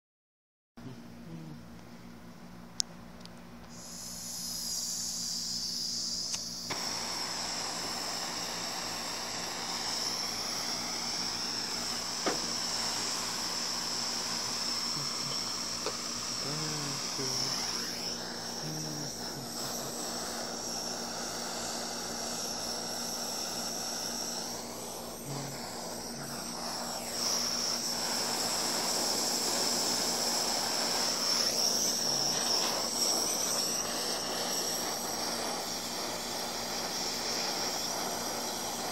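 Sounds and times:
blow torch flame hissing: 3.7 - 38.9.

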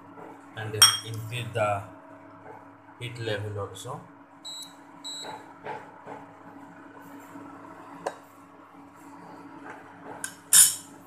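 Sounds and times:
induction cooktop humming: 0.0 - 11.0
control panel beep: 4.5 - 5.3.

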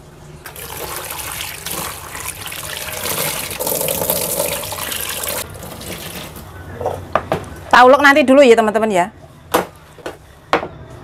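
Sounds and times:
tap water running into a bowl: 0.5 - 6.3.

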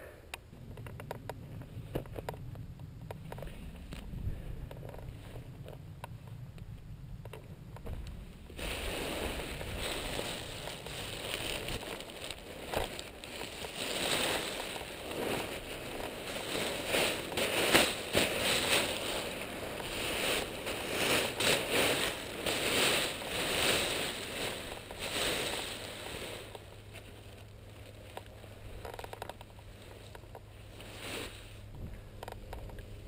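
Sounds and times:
nylon fabric rustling and crinkling: 8.6 - 33.0.

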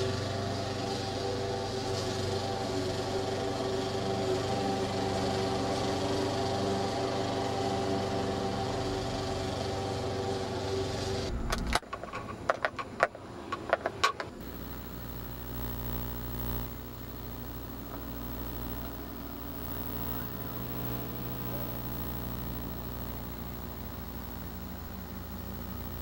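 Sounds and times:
small engine running: 0.0 - 26.0
sharp clicks and knocks: 11.5 - 14.5.

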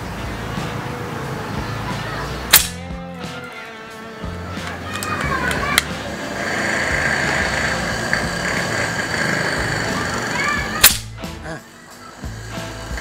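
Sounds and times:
air rifle shot: 2.5 - 2.9, 10.8 - 11.2.

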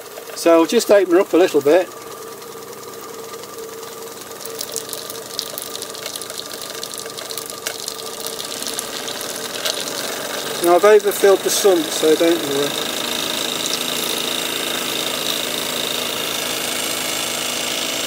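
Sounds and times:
model steam engine chattering: 9.0 - 16.6.

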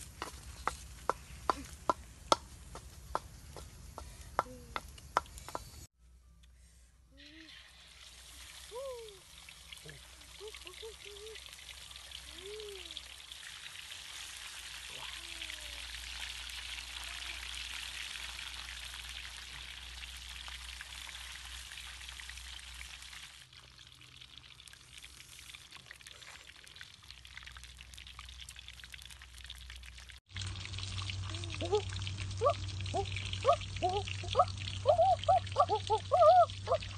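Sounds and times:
fish frying in hot oil: 11.4 - 34.9.

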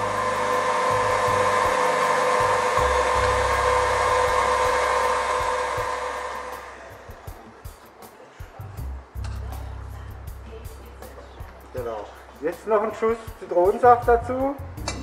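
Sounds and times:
stand mixer motor humming: 0.0 - 7.3.

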